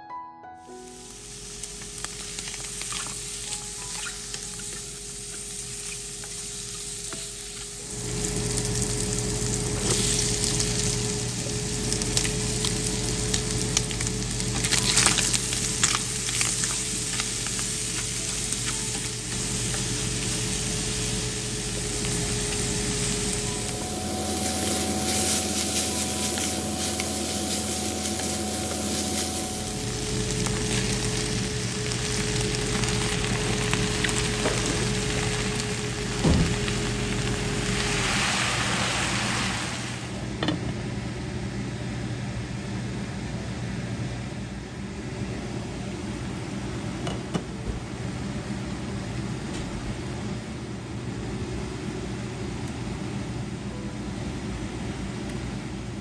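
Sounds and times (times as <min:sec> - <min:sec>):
food sizzling in a skillet: 0:00.8 - 0:40.1.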